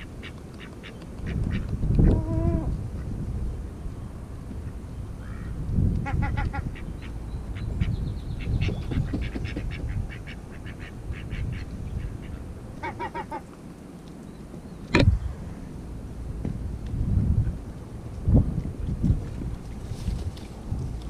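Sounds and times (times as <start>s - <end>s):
gull pecking rock: 0.0s - 2.4s, 8.6s - 10.9s
wind rumbling on microphone: 0.0s - 21.0s
rapid quacking calls: 6.0s - 13.5s.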